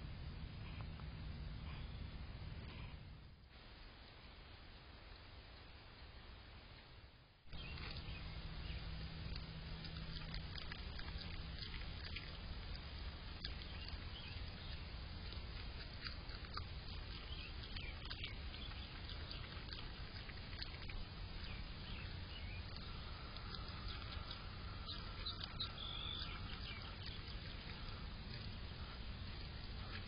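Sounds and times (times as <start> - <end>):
steady low hum: 0.0 - 30.0
animal chewing food: 7.5 - 30.0.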